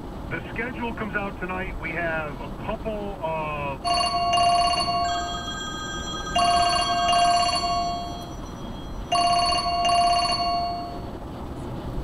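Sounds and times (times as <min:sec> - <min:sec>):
low road noise: 0:00.0 - 0:12.0
telephone ringing: 0:03.8 - 0:11.1.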